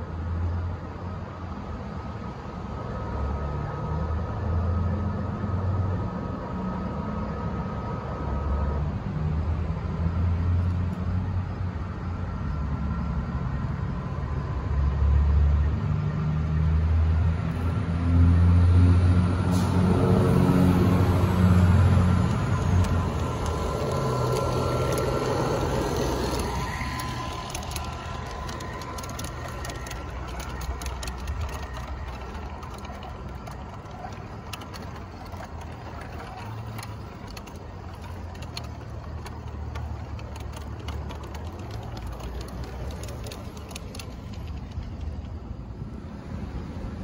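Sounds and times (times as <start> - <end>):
low steady hum: 0.0 - 47.0
model train locomotive running: 17.1 - 46.9
wheel clicks over rail joints: 20.8 - 45.7.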